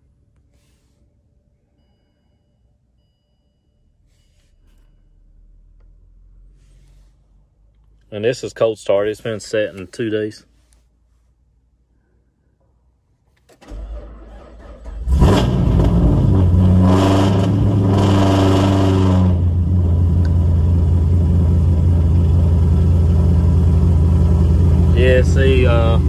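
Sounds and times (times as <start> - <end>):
car engine idling: 19.0 - 26.0.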